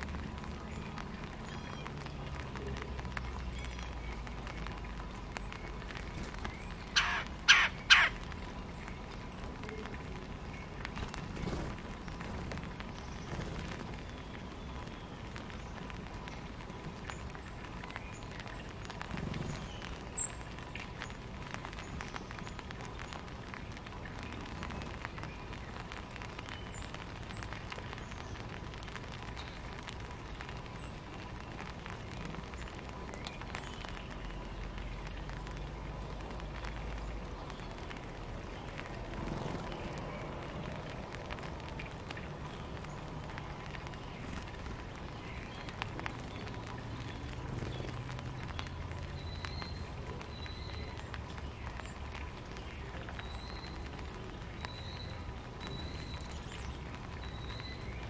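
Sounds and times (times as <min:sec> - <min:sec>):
small birds chirping: 0:00.0 - 0:58.0
steady noisy hiss: 0:00.0 - 0:58.0.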